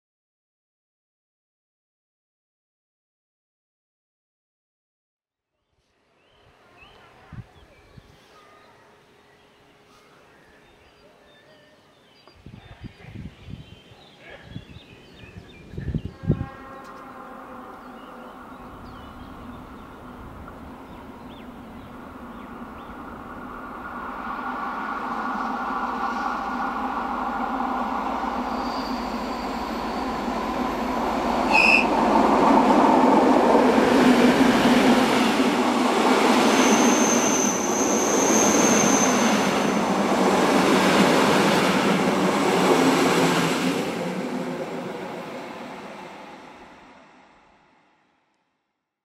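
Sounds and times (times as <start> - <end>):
train wheel squeal: 28.2 - 32.0, 36.4 - 39.8.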